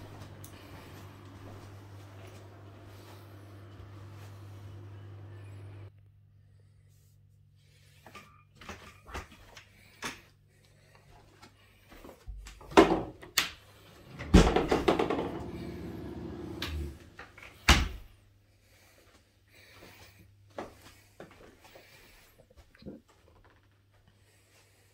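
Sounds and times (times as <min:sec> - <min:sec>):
doors banging: 0:14.0 - 0:17.0.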